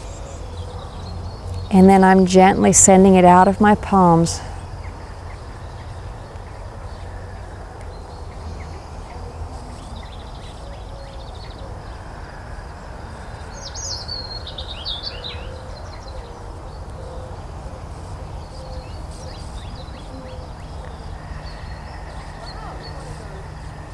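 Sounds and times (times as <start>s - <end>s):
songbirds chirping: 0.0s - 23.9s
bird song phrase: 13.4s - 16.9s, 18.3s - 23.8s.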